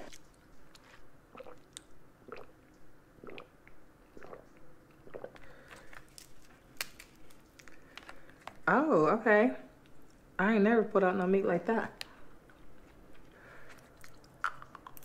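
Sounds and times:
crab shells cracking: 6.0 - 8.2
chewing and mouth noises: 12.8 - 15.0.

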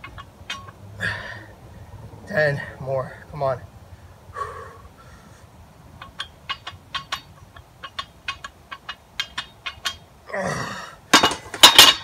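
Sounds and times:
barbell clicks: 6.0 - 10.0.

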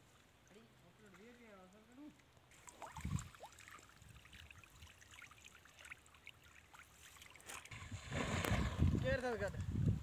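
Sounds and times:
water trickling and dripping: 0.0 - 7.8.

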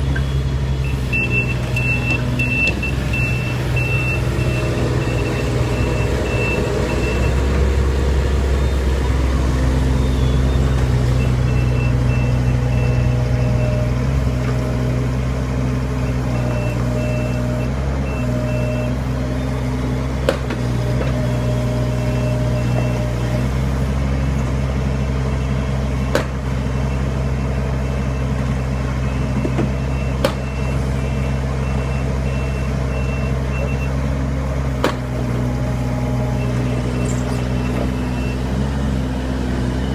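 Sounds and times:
diesel engine running: 0.0 - 39.9
warning alarm beeping: 0.2 - 7.5.

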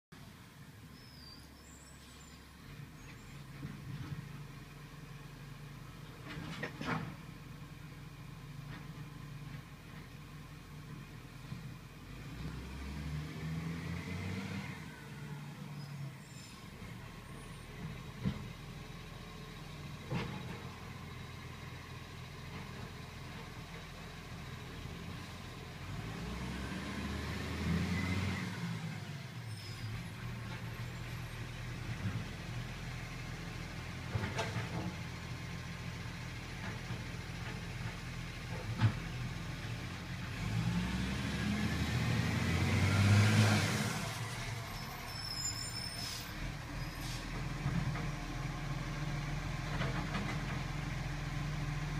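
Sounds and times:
garbage truck engine revving: 40.3 - 45.0.

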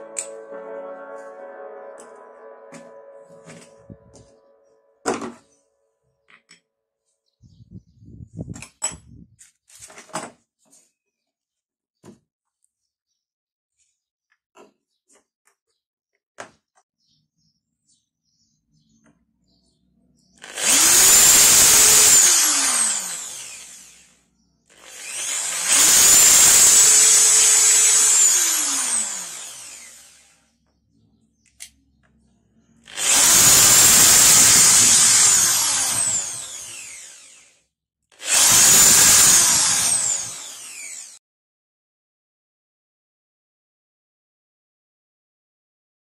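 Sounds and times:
electric drill motor whining: 20.4 - 30.5, 32.8 - 37.6, 38.2 - 41.2.

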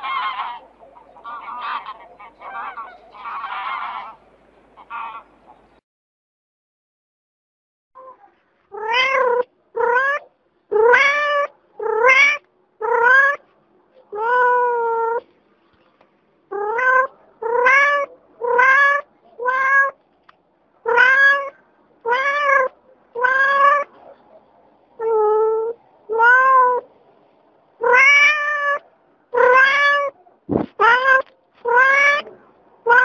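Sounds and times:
cat meowing: 8.0 - 13.4, 14.1 - 15.2, 16.5 - 20.0, 20.8 - 23.9, 25.0 - 26.9, 27.8 - 33.0.

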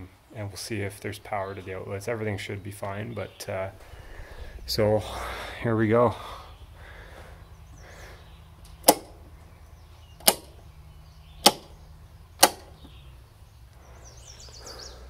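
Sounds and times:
circuit breakers clicking on: 8.6 - 9.2, 10.2 - 10.6, 11.4 - 11.8, 12.4 - 12.9.

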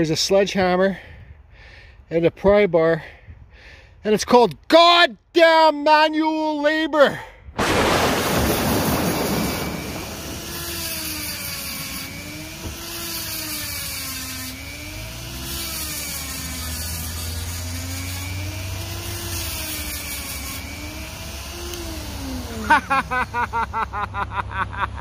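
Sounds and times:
rotary tool grinding chain: 9.3 - 23.8.

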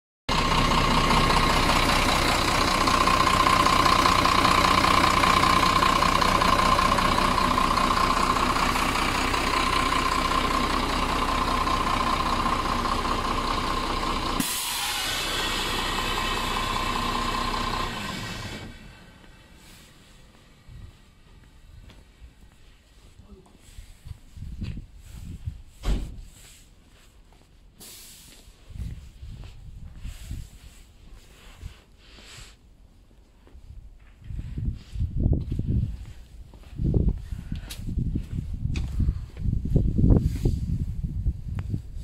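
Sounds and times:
diesel truck engine running: 0.3 - 22.6.

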